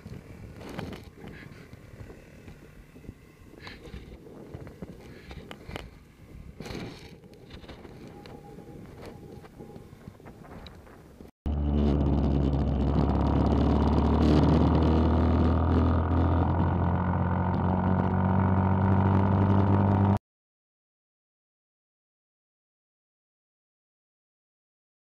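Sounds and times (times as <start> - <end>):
mini bike engine running: 11.5 - 20.0.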